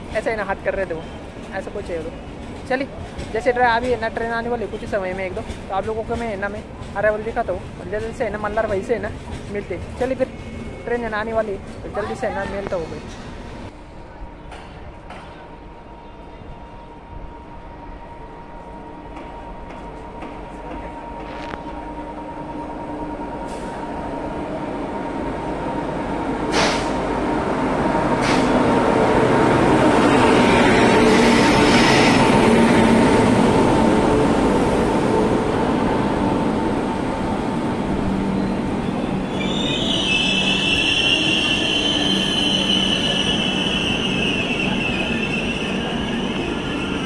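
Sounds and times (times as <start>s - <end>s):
train coaches rolling by: 0.0s - 47.0s
electric locomotive whine: 15.4s - 47.0s
high-pitched brake squeal: 38.3s - 47.0s.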